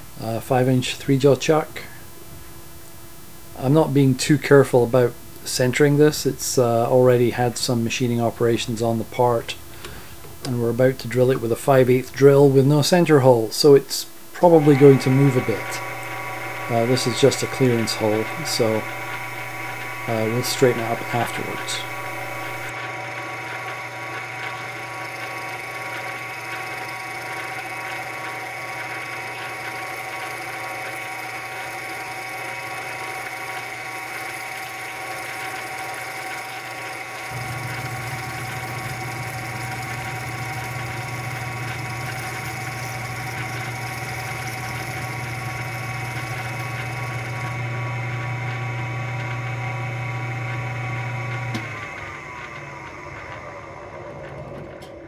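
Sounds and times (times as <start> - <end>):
deeper hum: 14.2 - 22.8
metal lathe drilling whine: 14.4 - 55.0.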